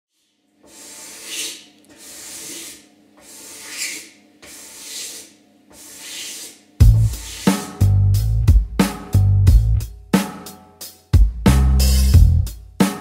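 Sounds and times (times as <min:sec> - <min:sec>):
blade scraping wood: 0:00.6 - 0:07.8.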